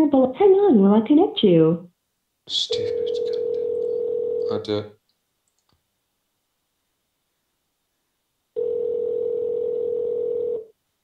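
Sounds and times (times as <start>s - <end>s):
telephone ringback tone: 2.9s - 4.5s, 8.6s - 10.7s.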